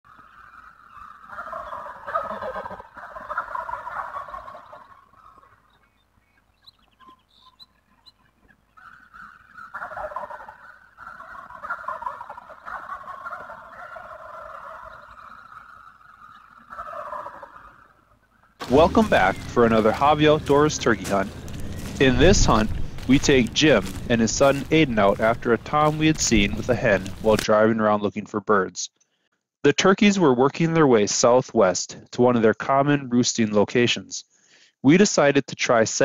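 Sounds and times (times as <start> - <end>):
turkeys gobbling: 0.1 - 28.0.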